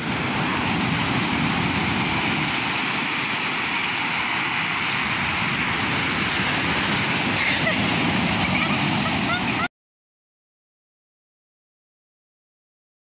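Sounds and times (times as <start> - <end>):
surf washing up pebble beach: 0.0 - 9.7.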